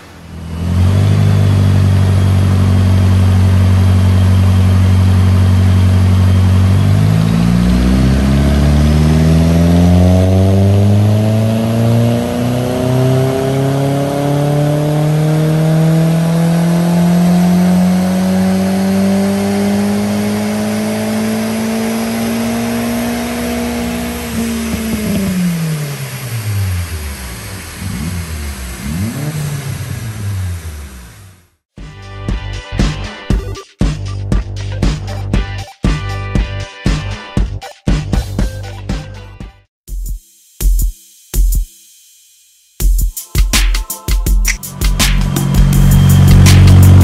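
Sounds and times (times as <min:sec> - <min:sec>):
car engine revving: 0:00.0 - 0:31.6, 0:44.6 - 0:47.0.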